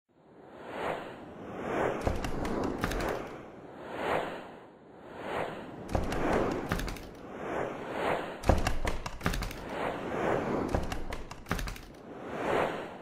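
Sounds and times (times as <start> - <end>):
whooshes: 0.5 - 13.0
sharp cracks: 2.0 - 3.4, 5.9 - 7.2, 8.4 - 9.8, 10.7 - 12.0.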